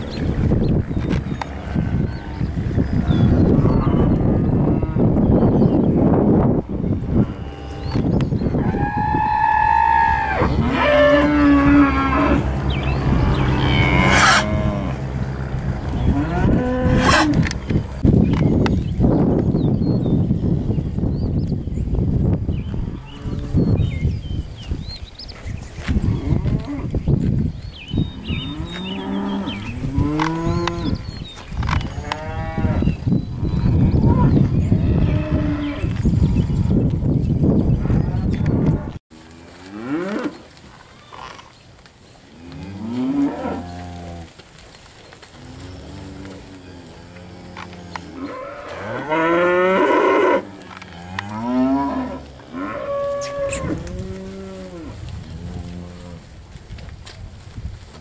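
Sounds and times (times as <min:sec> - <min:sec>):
steers mooing: 0:08.6 - 0:18.0, 0:45.2 - 0:56.3.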